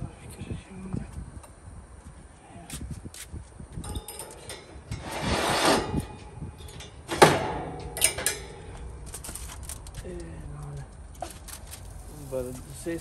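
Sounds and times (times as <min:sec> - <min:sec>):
sharp metallic clank: 0:03.9 - 0:08.7
metal grill grate scraping: 0:03.9 - 0:10.0, 0:11.2 - 0:13.0.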